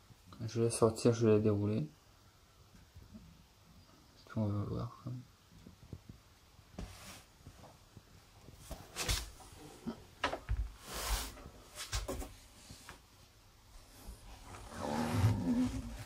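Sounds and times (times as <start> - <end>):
knocks scrapes and rustles: 14.2 - 16.0.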